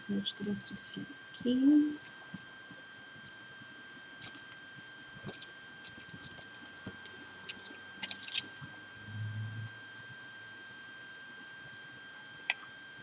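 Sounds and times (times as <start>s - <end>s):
faint steady high whine: 0.0s - 13.0s
paintbrushes clicking and rustling: 4.2s - 4.6s, 5.2s - 8.5s.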